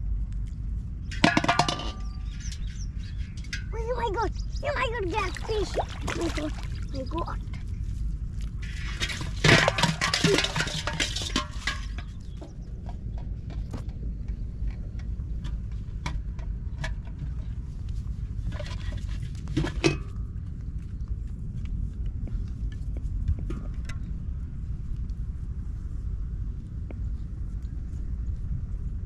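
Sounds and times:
low rumble: 0:00.0 - 0:29.0
metal pot clattering: 0:01.1 - 0:03.7, 0:08.6 - 0:12.5.

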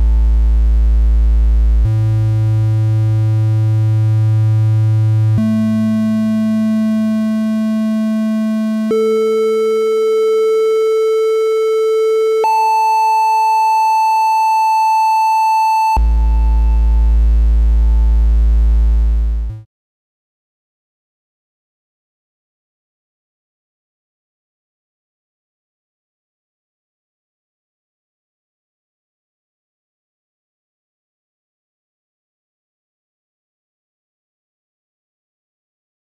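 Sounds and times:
synthesizer triangle-wave tone: 0:00.0 - 0:19.6.

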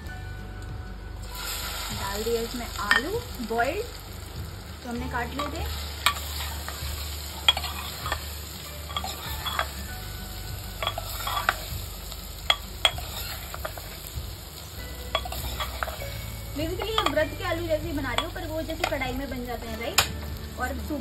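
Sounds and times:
oil sizzling: 0:00.0 - 0:21.0
ladle clinking and scraping: 0:05.4 - 0:09.9, 0:10.8 - 0:11.7, 0:12.5 - 0:14.0, 0:15.1 - 0:17.2.

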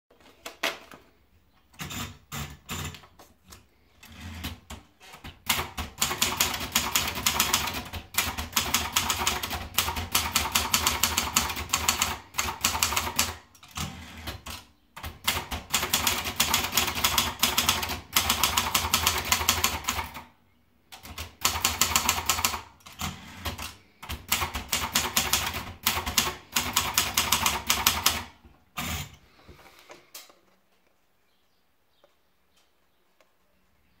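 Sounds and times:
typewriter paper feed clicks: 0:04.0 - 0:20.2, 0:20.9 - 0:29.2.

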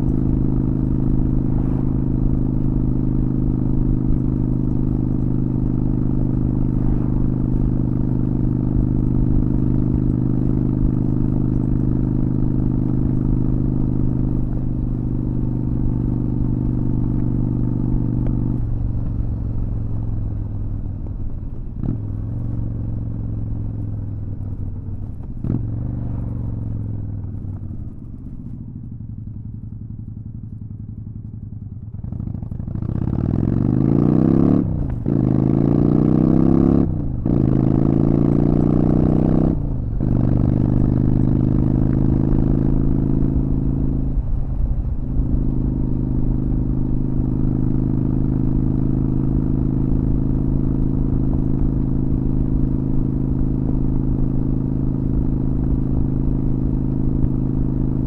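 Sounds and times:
motorcycle engine revving and shifting: 0:00.0 - 0:20.1, 0:21.7 - 0:23.5, 0:24.5 - 0:28.7, 0:31.9 - 0:58.0
wind rumbling on microphone: 0:00.0 - 0:22.4.

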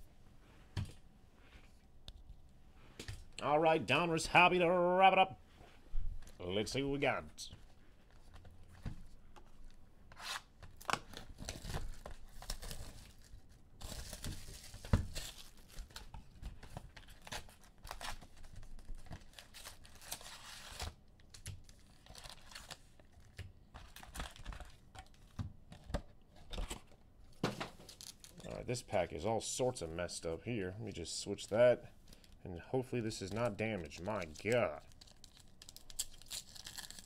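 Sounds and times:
card wrapper tearing: 0:33.0 - 0:37.0.

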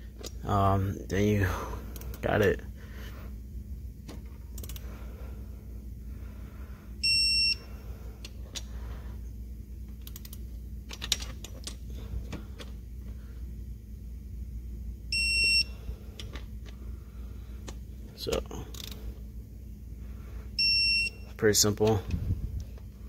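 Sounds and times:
torque wrench electronic beep: 0:15.2 - 0:15.8
wrench ratchet clicks: 0:18.7 - 0:19.0.

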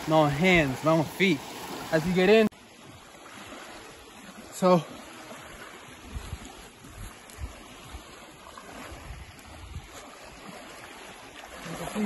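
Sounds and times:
small waves lapping on pebbles: 0:00.0 - 0:12.0
wind gusting on microphone: 0:05.8 - 0:10.6.

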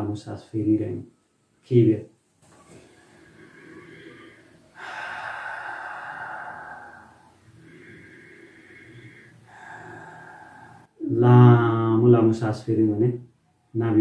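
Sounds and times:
man breathing deeply: 0:02.7 - 0:11.0.

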